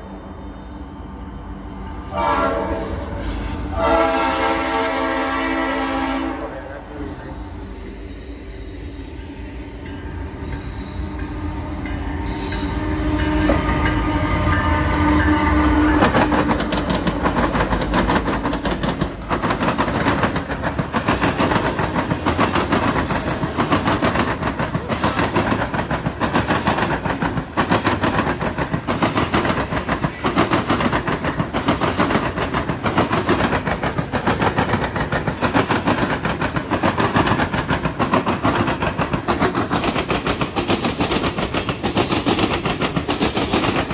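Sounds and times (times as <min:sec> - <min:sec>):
diesel locomotives passing: 0:00.0 - 0:43.9
train horn: 0:02.0 - 0:07.0, 0:11.0 - 0:16.3
train wheels clattering on rails: 0:09.0 - 0:43.9.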